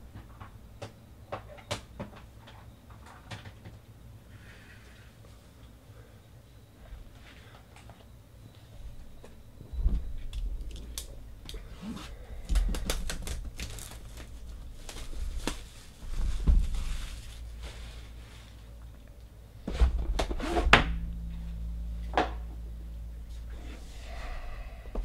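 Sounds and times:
shrink wrap crackling: 12.5 - 18.6.

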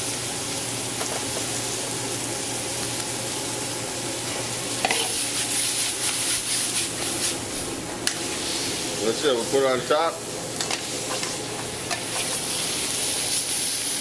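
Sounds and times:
food sizzling in a skillet: 0.0 - 14.0
utensil stirring in a pan: 4.8 - 9.6, 10.6 - 14.0.

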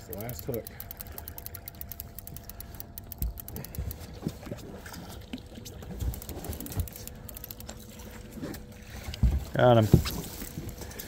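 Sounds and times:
fishing reel ticking: 0.0 - 4.4, 6.0 - 7.9
outboard motor running: 0.0 - 11.0.

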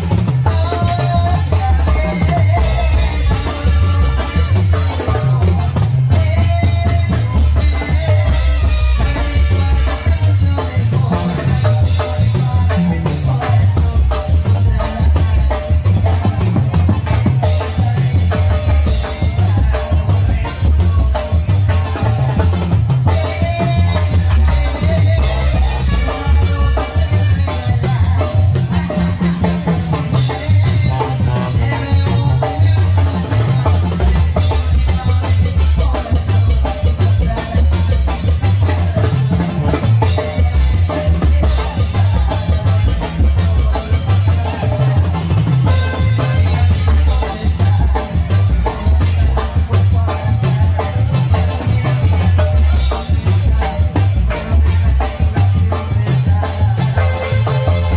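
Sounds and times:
drum kit and percussion: 0.0 - 57.9
heavy bass line: 0.0 - 57.9
live band playing cumbia: 0.0 - 57.9
horn melody: 0.8 - 5.6, 6.2 - 11.4, 23.4 - 28.2, 45.4 - 49.3, 53.4 - 57.9.

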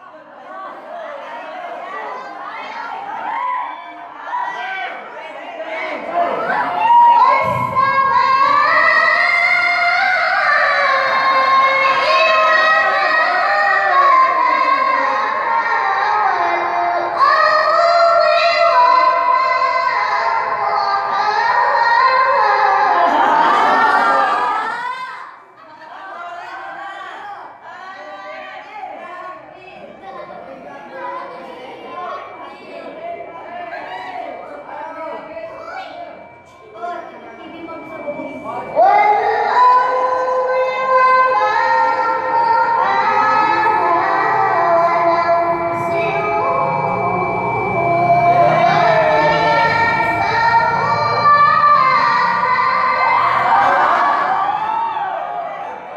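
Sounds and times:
person reciting through a microphone: 5.6 - 25.2, 29.8 - 54.2.

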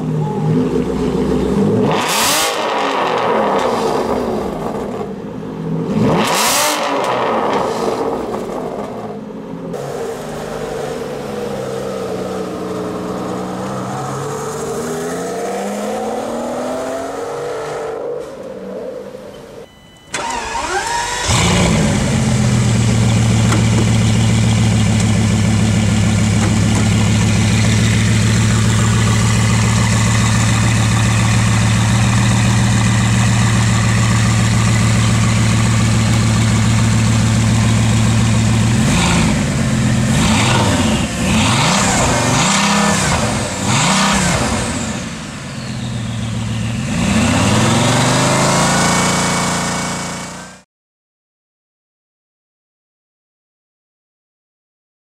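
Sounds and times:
car engine starting: 0.0 - 50.6
car engine revving: 0.5 - 5.2, 5.8 - 9.1, 9.7 - 19.3, 20.2 - 50.6
car engine idling: 20.2 - 40.2.

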